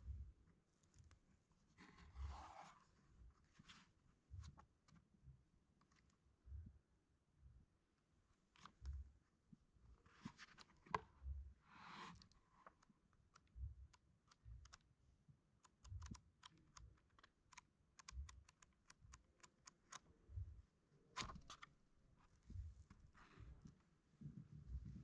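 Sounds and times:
soft thumps handling book: 1.5 - 5.0, 10.0 - 12.8
book pages flicking: 21.2 - 21.7.

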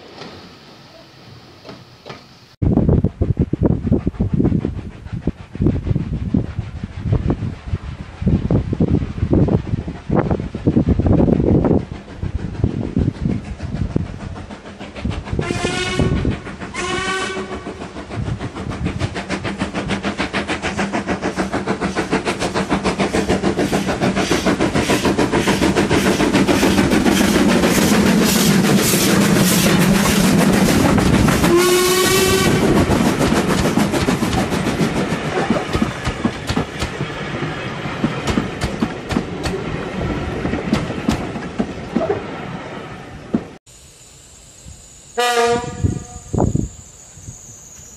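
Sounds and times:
steam locomotive exhaust beats: 0.0 - 42.6, 43.2 - 47.9
train wheels clattering over rails: 9.6 - 42.3
steam locomotive whistle: 15.4 - 17.7, 31.4 - 32.8, 43.8 - 47.9.

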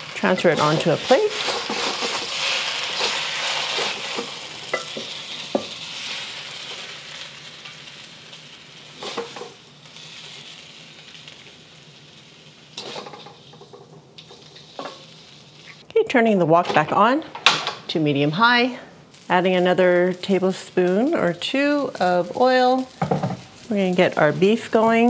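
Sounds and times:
noodles sizzling in a wok: 0.0 - 15.8, 18.3 - 25.0
spatula scraping and knocking wok: 0.2 - 6.9, 9.0 - 9.6, 12.8 - 15.1, 22.2 - 23.7.

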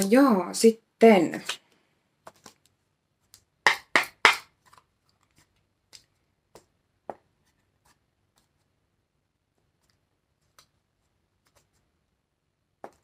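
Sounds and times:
cards being shuffled: 2.2 - 3.5, 4.3 - 6.7, 9.7 - 11.9.

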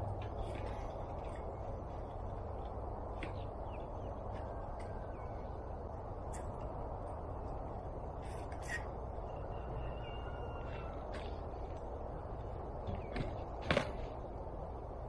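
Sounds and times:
low outdoor rumble: 0.0 - 15.0
birds calling and chirping: 0.2 - 13.8.

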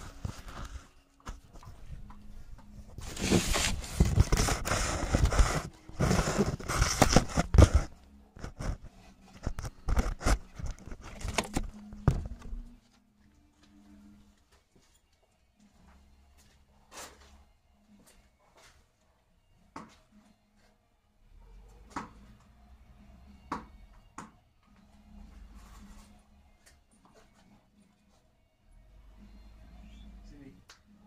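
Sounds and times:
phone handling noise: 6.1 - 12.6.

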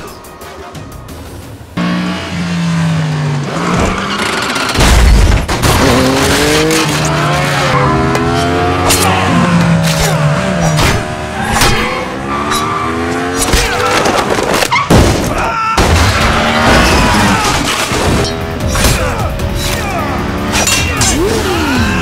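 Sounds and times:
film music score: 0.0 - 4.4, 15.1 - 22.0
motorcycle engines revving: 1.7 - 4.8, 5.5 - 14.7, 16.0 - 22.0.

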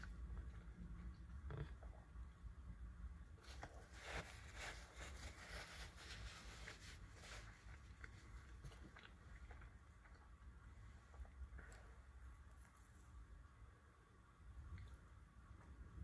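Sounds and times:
chewing crunchy food: 7.4 - 10.5.

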